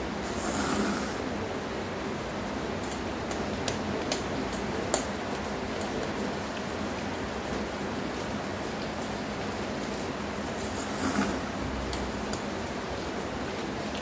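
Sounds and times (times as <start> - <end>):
rain hissing: 0.0 - 3.2, 6.3 - 13.9
noodle slurp: 0.2 - 1.3, 10.6 - 11.6.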